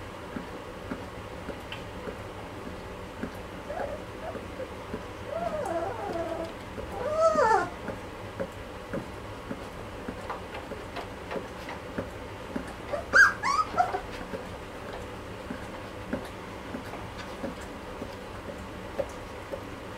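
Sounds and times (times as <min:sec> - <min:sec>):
puppies whimpering and squeaking: 0:03.6 - 0:07.8, 0:12.9 - 0:14.2.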